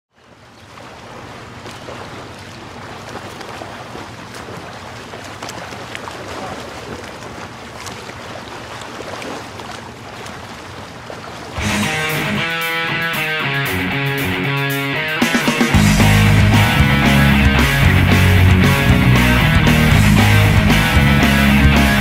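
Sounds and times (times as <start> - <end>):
wind and water noise: 0.1 - 12.9
boat engine hum: 0.4 - 22.0.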